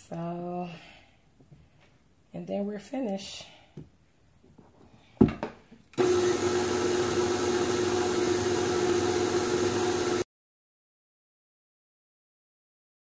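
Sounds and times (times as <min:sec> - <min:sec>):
stand mixer motor humming: 0:06.0 - 0:10.3.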